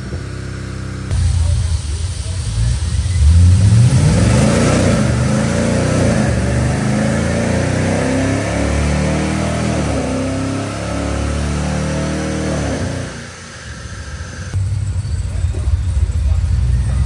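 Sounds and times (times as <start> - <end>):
car engine revving on dyno: 0.0 - 17.0.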